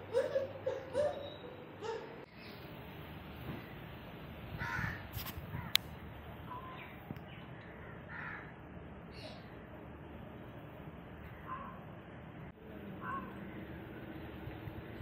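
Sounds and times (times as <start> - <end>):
steady background noise: 0.0 - 15.0
crow cawing: 4.6 - 5.8, 7.6 - 8.5.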